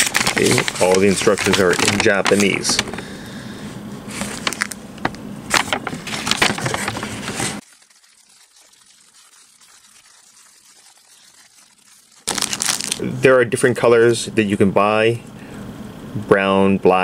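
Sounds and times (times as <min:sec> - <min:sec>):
paper rustling and crinkling: 0:00.0 - 0:03.1, 0:04.1 - 0:13.0.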